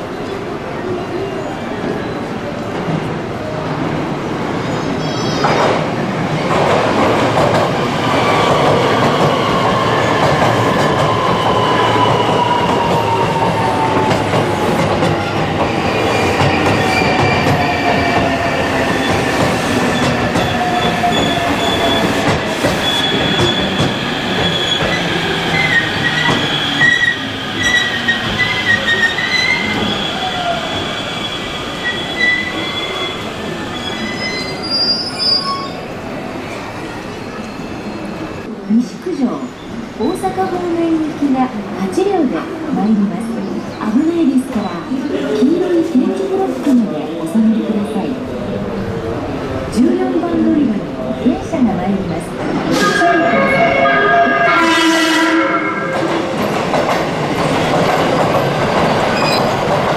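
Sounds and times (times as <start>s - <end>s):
train running noise: 1.7s - 32.7s, 43.9s - 59.9s.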